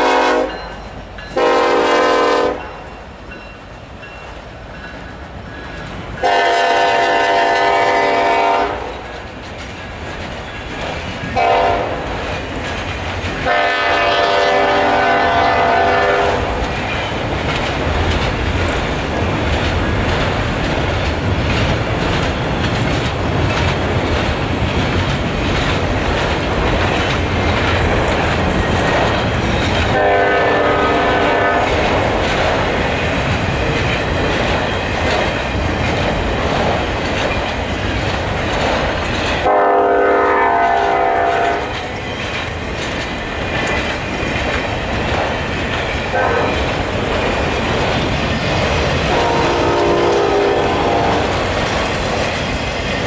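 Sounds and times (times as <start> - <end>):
locomotive air horn: 0.0 - 0.6, 1.4 - 2.7, 6.2 - 9.0, 11.4 - 12.0, 13.4 - 16.6, 29.9 - 31.7, 39.4 - 41.8, 46.1 - 46.6, 49.1 - 51.4
freight train rumble and clatter: 0.0 - 53.0.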